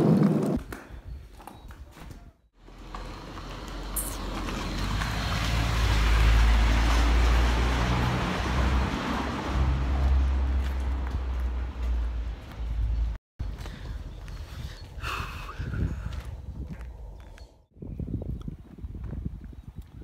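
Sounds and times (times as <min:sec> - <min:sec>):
car driving past on dirt road: 0:02.7 - 0:13.2.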